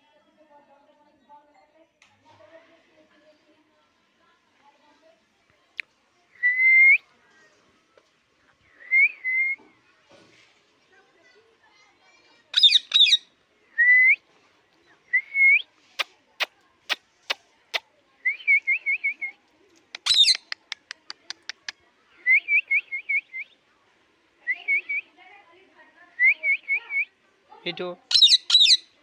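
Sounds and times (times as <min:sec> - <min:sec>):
parakeet chirps and whistles: 0:12.6 - 0:13.2, 0:20.0 - 0:20.5, 0:28.1 - 0:28.9
parakeet squawking: 0:12.6 - 0:13.2, 0:20.0 - 0:20.5, 0:28.1 - 0:28.9.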